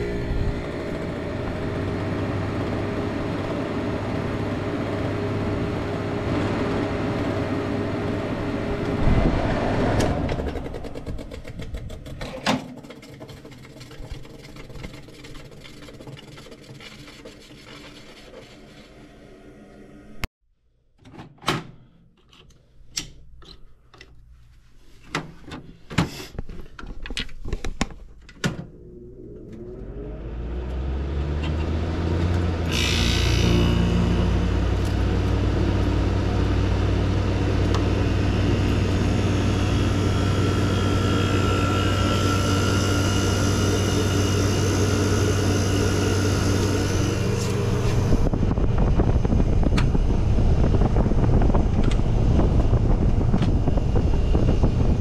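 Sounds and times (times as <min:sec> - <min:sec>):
air conditioner motor hum: 0:00.0 - 0:11.2, 0:28.5 - 0:55.0
rush of air: 0:08.5 - 0:11.1
air conditioner clicks and knocks: 0:10.2 - 0:15.1.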